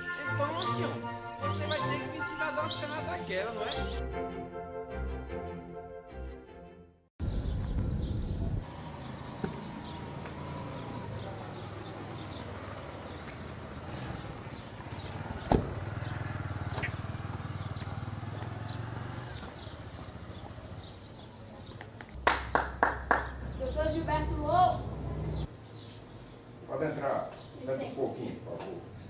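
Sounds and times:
street background noise: 7.2 - 29.0
car door slamming: 15.4 - 15.9.

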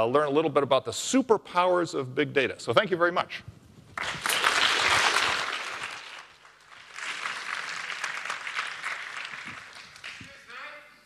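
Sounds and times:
audience applauding: 4.0 - 10.6.

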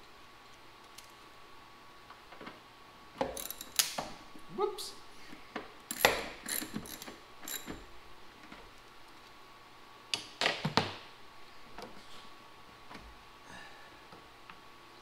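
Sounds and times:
socket ratchet and parts clinking: 3.4 - 3.9, 5.9 - 7.8.

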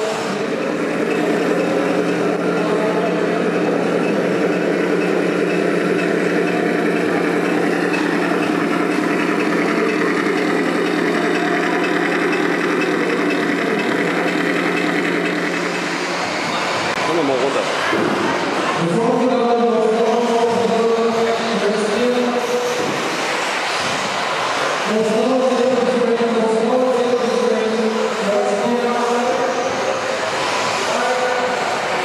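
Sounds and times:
drivetrain rattle: 0.5 - 16.2.

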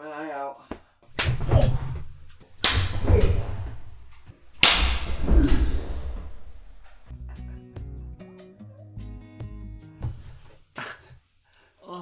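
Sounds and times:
hard open-hand slap: 0.7 - 2.0, 2.6 - 5.9.

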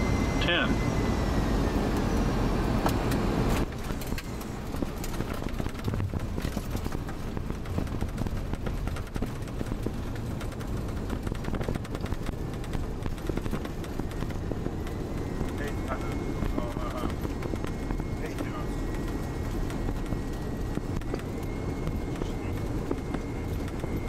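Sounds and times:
engine and wheel rumble: 0.0 - 24.0
knocks and rattles: 3.7 - 21.4.

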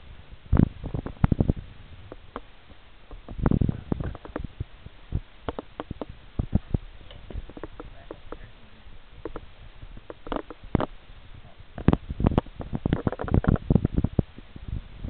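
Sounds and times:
irregular taps and clicks: 5.4 - 6.1, 9.2 - 10.9.

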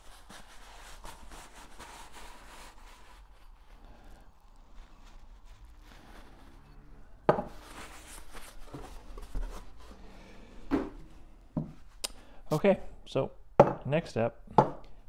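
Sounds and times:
rubbing and scuffing of parts: 5.0 - 12.0
tools knocking on workbench: 13.6 - 13.8.

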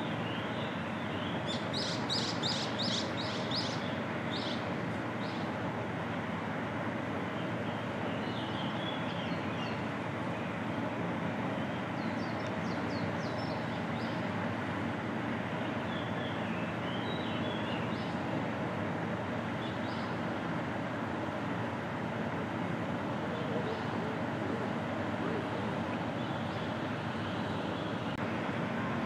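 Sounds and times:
small birds chirping: 0.0 - 5.6, 7.3 - 10.5, 11.5 - 14.3, 15.6 - 18.2, 19.5 - 20.2, 23.3 - 24.0
steady outdoor background noise: 0.0 - 29.0.

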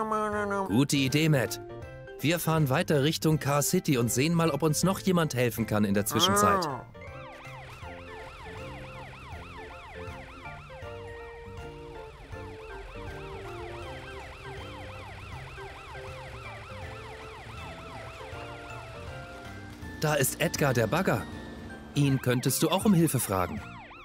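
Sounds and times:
background music with low notes: 0.0 - 24.0
cartoon police siren yelping: 6.1 - 6.9.

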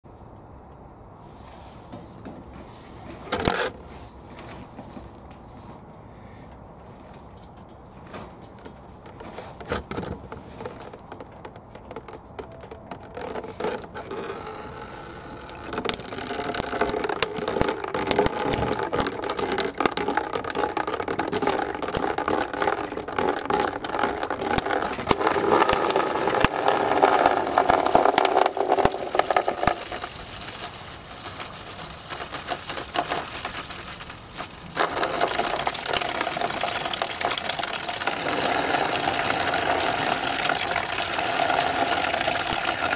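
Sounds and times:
liquid draining and splashing: 15.2 - 42.9.

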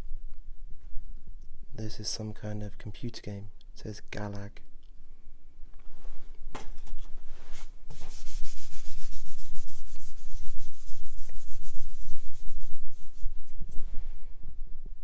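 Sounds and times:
hand rubbing glass: 7.0 - 14.0.

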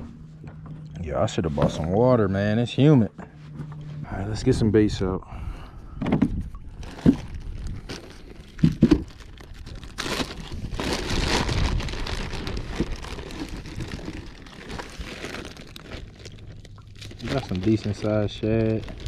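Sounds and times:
plastic bag crinkling: 6.7 - 19.0.

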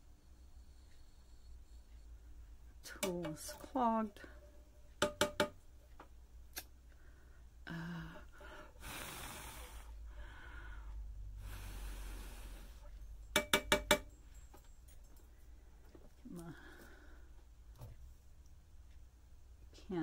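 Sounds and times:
sharp clicks and taps: 5.0 - 6.7
soft breathing: 6.9 - 13.2, 15.2 - 18.0
person humming: 7.6 - 9.9
breathy exhales: 7.7 - 12.9.

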